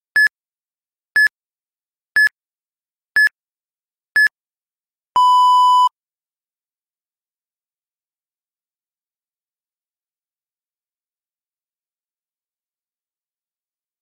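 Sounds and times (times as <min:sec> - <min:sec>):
long low timer beep: 0:05.2 - 0:05.9.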